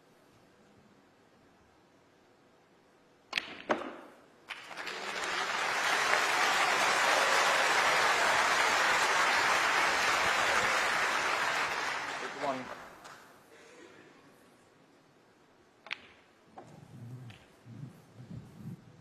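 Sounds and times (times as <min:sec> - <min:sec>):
snooker balls clicking: 0:03.3 - 0:04.6, 0:15.8 - 0:17.6
audience applause: 0:04.5 - 0:13.2.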